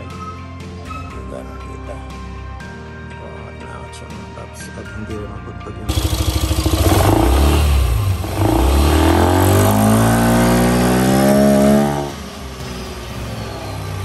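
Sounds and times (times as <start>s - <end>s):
scooter engine revving: 5.9s - 14.0s.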